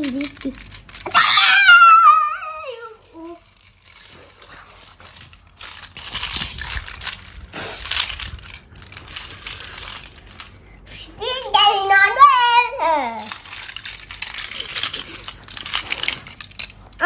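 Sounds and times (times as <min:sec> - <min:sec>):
child's high voice: 0:00.0 - 0:03.5, 0:11.0 - 0:13.4
toy cars clattering and scraping: 0:00.0 - 0:17.0.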